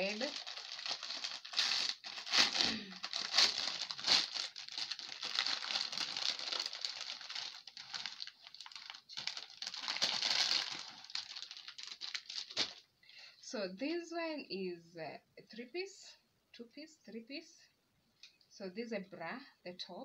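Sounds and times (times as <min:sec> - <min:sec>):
plastic packet crinkling: 0:00.0 - 0:12.8.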